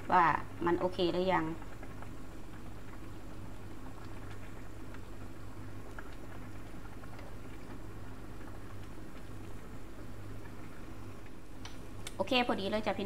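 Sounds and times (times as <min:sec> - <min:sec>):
steady low hum: 0:00.0 - 0:13.0
soup bubbling in a pan: 0:00.1 - 0:12.1.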